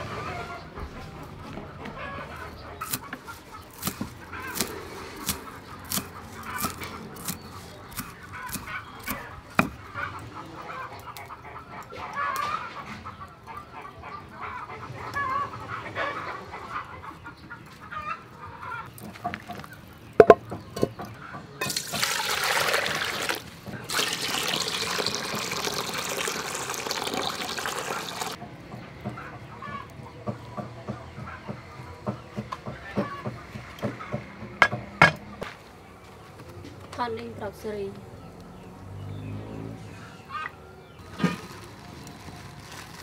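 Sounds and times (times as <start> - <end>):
chickens clucking: 0.0 - 36.9, 37.8 - 42.4
knife chopping on wooden board: 3.8 - 9.8, 32.4 - 35.3.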